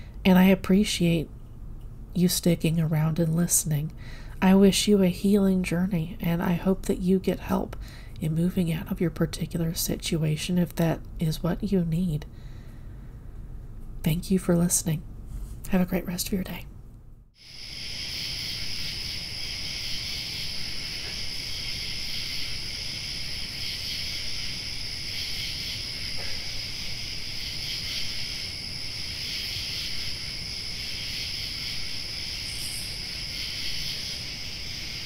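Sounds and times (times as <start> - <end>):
night insects chorus: 17.4 - 35.0.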